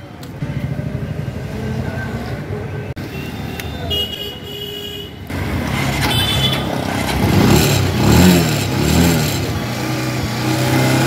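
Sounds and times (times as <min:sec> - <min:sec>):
motorcycle engine revving: 0:05.3 - 0:11.0.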